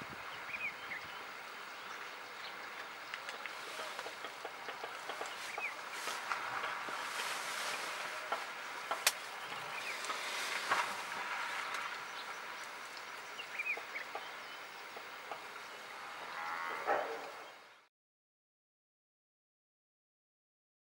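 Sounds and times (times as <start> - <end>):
bird chirps: 0.4 - 10.6, 11.6 - 14.7
water washing and splashing: 2.2 - 15.7.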